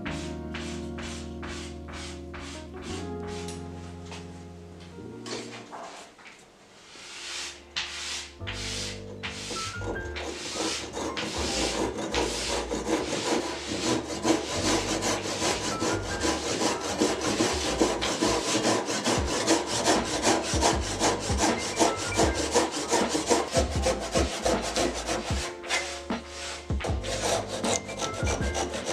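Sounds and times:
hand saw cutting wood: 7.2s - 28.9s.

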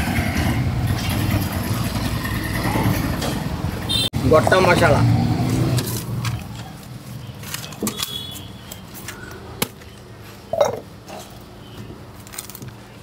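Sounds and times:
metal bowl and utensils clinking: 10.5s - 11.4s.

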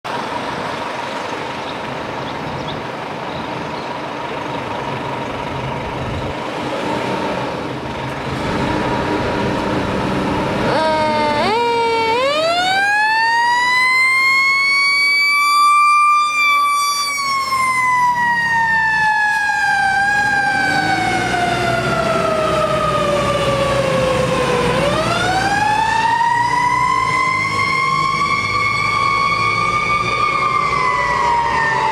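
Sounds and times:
fire engine diesel running: 0.1s - 31.9s
siren wailing: 10.6s - 31.9s.

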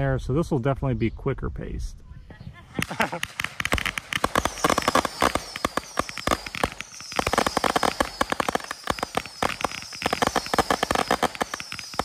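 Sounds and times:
whistling fireworks: 2.6s - 12.0s
firework pops and crackling: 2.7s - 12.0s.

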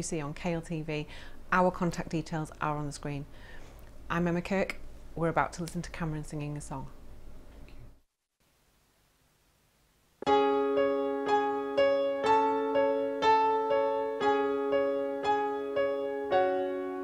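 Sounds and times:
piano introduction: 10.2s - 17.0s.

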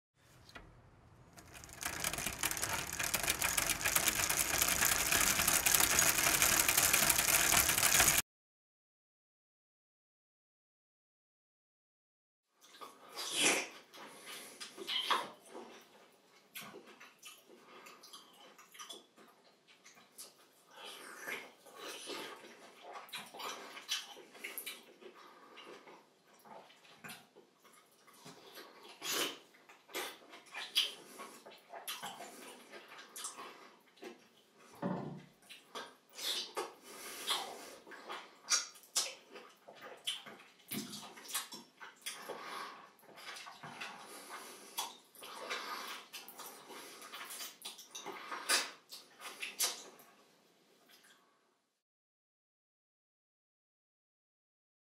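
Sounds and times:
fast mechanical rattle: 0.4s - 8.2s.

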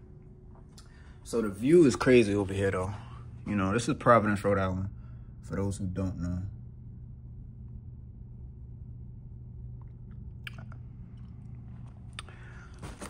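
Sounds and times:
low hum: 0.0s - 13.0s
person chewing food: 9.8s - 13.0s.

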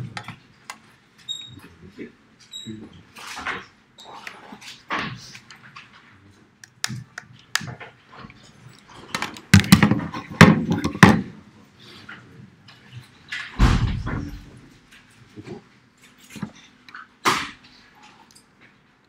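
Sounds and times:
knocks and thumps in room: 9.1s - 11.4s, 13.4s - 14.9s
thuds and rumbling: 13.6s - 14.7s.

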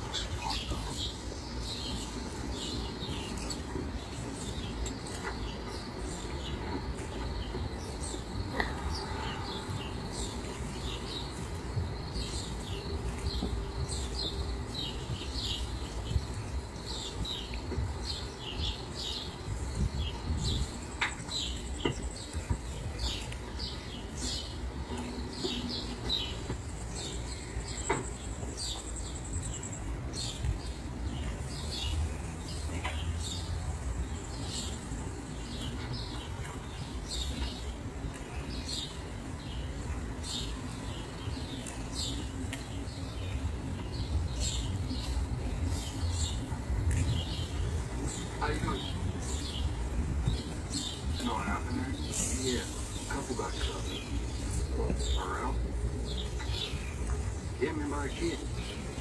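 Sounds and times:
small birds chirping: 0.0s - 59.0s
steady low rumble: 0.0s - 59.0s.

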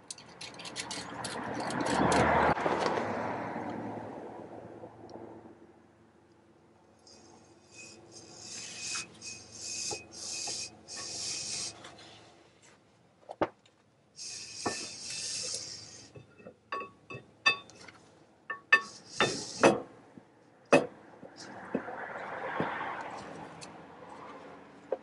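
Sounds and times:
metal rasping and scraping: 0.0s - 2.6s, 7.0s - 12.3s, 14.2s - 19.9s.

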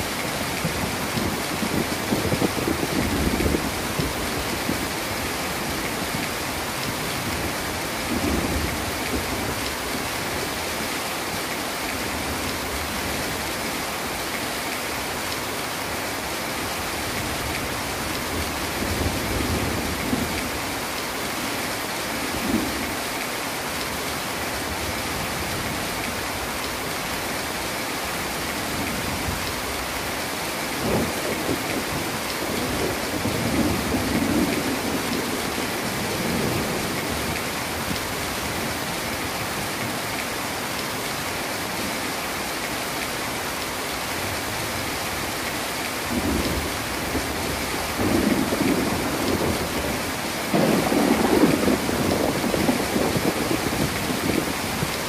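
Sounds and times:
heavy rain falling: 0.0s - 55.0s
thunder rumbling: 46.1s - 55.0s.

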